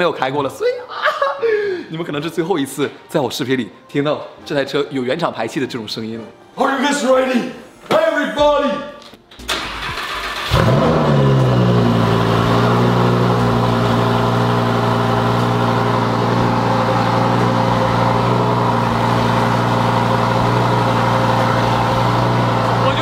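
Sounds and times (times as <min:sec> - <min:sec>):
car engine starting and idling: 0:09.4 - 0:23.0.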